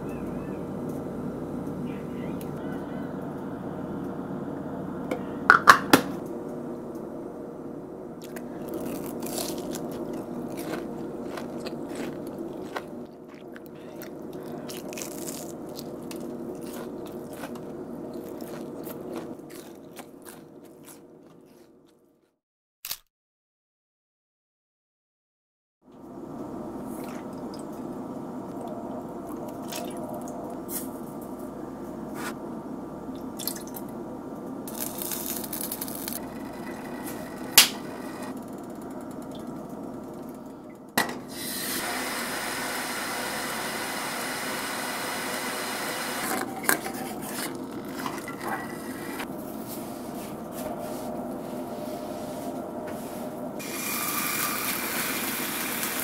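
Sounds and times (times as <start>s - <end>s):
chicken hissing in frying pan: 41.3s - 46.0s, 53.6s - 56.0s
utensils clinking: 46.2s - 49.2s.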